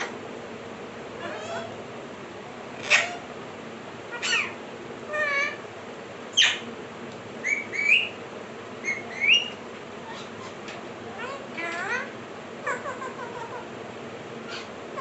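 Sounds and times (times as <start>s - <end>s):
parakeets calling: 0.0s - 0.2s, 1.2s - 1.8s, 2.8s - 3.3s, 4.1s - 5.7s, 6.3s - 6.7s, 7.4s - 8.2s, 8.8s - 13.7s, 14.4s - 15.0s.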